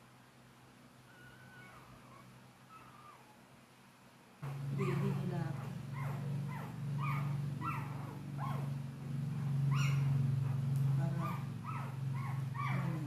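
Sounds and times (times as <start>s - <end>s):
dog whining: 1.1s - 3.5s, 4.4s - 13.0s
low hum: 4.4s - 13.0s.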